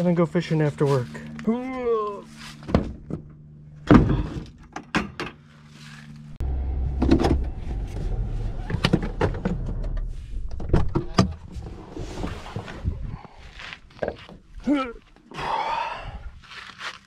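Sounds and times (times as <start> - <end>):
low rumble in truck cab: 5.4 - 15.1.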